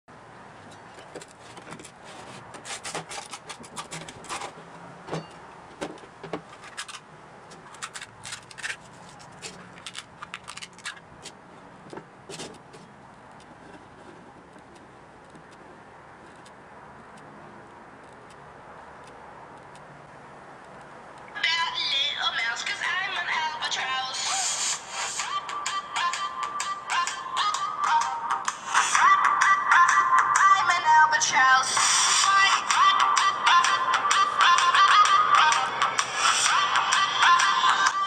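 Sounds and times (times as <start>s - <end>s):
steady hiss: 24.2s - 25.3s.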